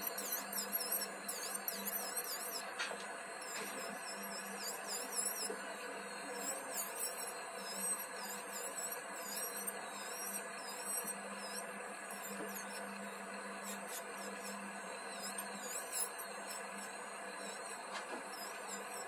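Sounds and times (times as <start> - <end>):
electric nail drill whirring: 0.0 - 19.0.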